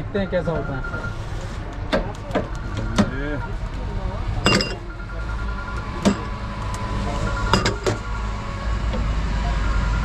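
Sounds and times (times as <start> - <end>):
low rumble of street traffic: 0.0 - 10.0
dishes clinking: 4.4 - 4.8.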